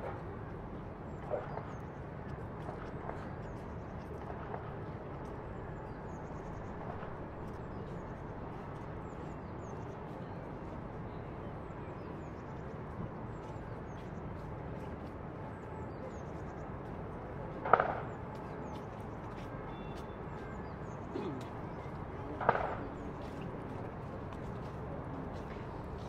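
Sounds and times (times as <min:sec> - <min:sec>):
hum of traffic: 0:00.0 - 0:26.0.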